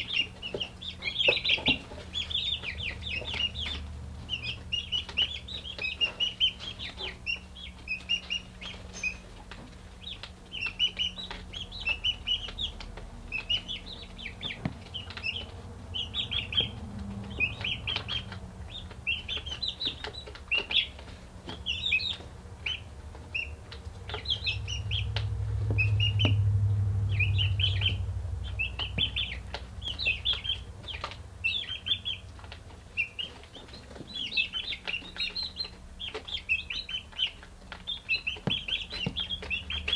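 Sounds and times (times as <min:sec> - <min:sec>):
chicks peeping: 0:00.0 - 0:39.9
steady low hum: 0:00.0 - 0:39.9
low rumble: 0:13.0 - 0:19.4, 0:24.1 - 0:32.5.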